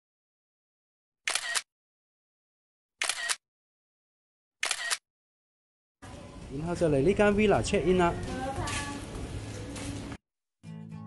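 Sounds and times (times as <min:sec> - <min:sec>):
camera shutter click: 0:01.3 - 0:01.7, 0:03.0 - 0:03.4, 0:04.6 - 0:05.0.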